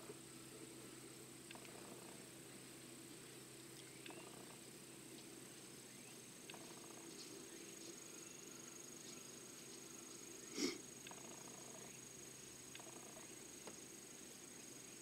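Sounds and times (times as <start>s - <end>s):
low steady hum: 0.0s - 15.0s
high-pitched insect trilling: 5.9s - 13.6s.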